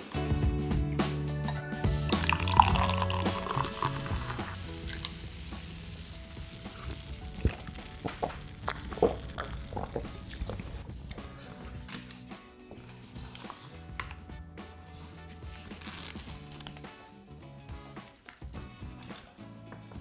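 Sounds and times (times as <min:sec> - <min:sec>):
background music: 0:00.0 - 0:20.0
food sizzling in frying oil: 0:02.0 - 0:10.8.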